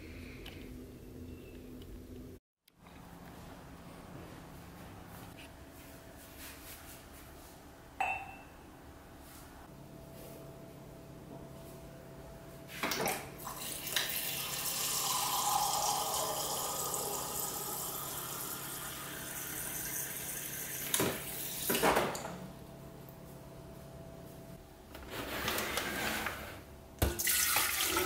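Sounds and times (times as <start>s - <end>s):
water pouring into a mug: 13.4s - 20.8s, 27.2s - 28.0s.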